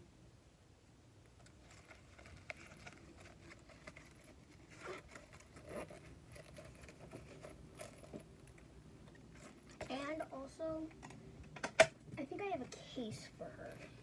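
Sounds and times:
fabric bag rustling: 1.5 - 8.6.

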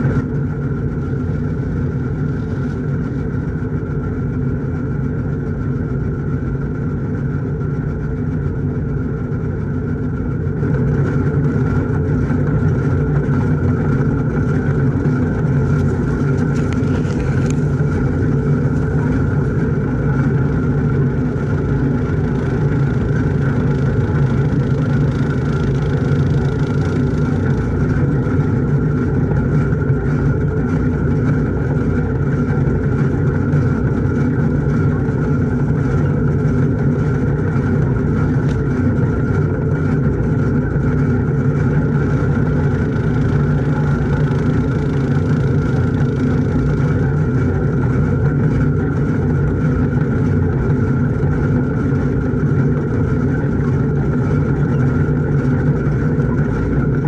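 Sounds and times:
tractor engine drone: 0.0 - 57.0
corn stalks fed through chopper: 10.9 - 57.0
corn chopper running: 12.4 - 57.0.

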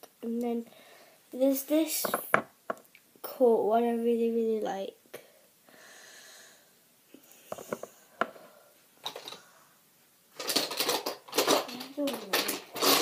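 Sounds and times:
rustling clatter of rummaging: 9.0 - 9.4, 10.4 - 13.0.

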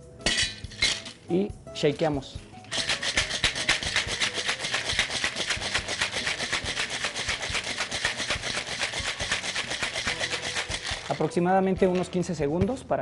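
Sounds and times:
ice rattling in a cocktail shaker: 0.3 - 1.2, 2.7 - 11.4.

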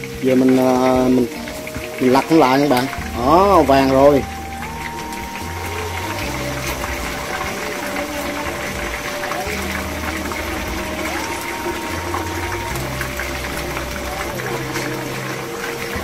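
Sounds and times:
background music with held notes: 0.0 - 16.0
chicken sizzling in frying oil: 0.0 - 16.0.

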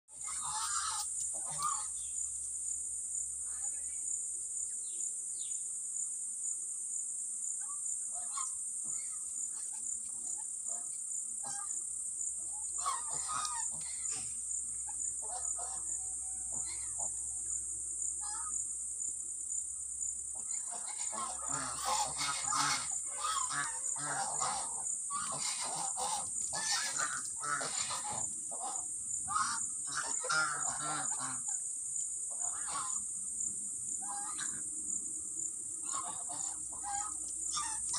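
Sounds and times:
geese honking: 0.1 - 2.0, 12.8 - 14.3, 15.2 - 17.2, 20.4 - 31.6, 32.3 - 33.0, 34.0 - 34.6, 35.8 - 37.9
high insect buzz: 0.1 - 37.9.

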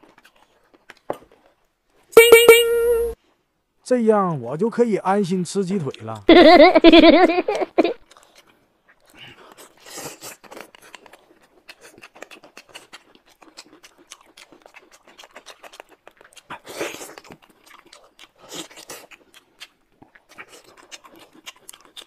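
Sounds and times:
wet chewing with mouth clicks: 0.0 - 2.1, 8.0 - 22.0.

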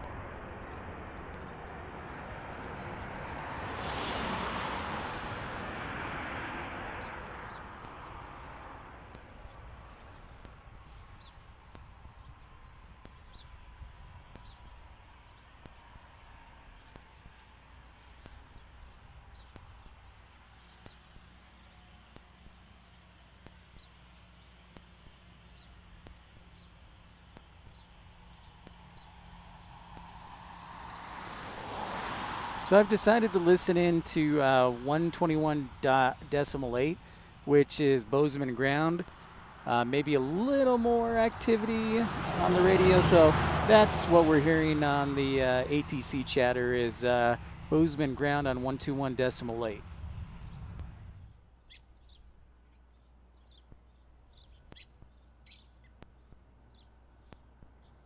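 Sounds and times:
engine whine falling in pitch: 0.0 - 4.1.

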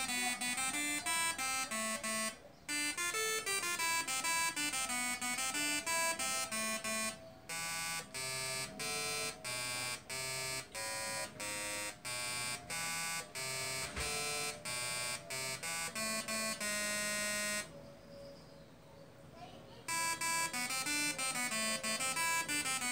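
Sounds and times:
tesla coil buzzing a tune: 0.0 - 17.7, 19.9 - 22.9.

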